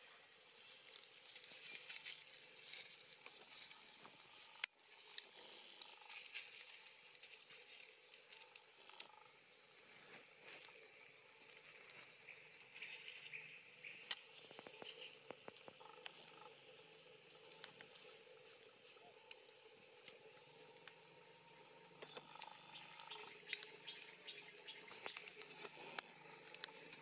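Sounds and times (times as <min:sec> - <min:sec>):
rustling of dry leaf litter: 0:00.6 - 0:13.5.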